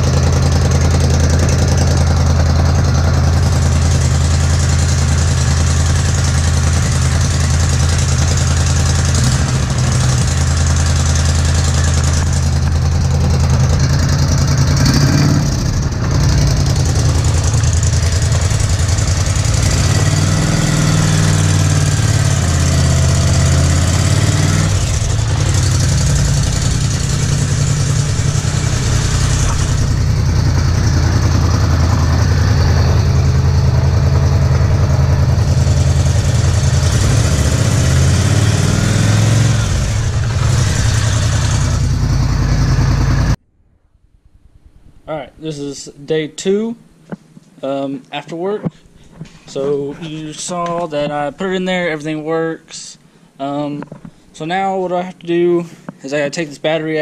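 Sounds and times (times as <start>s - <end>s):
atv engine idling: 0.0s - 43.4s.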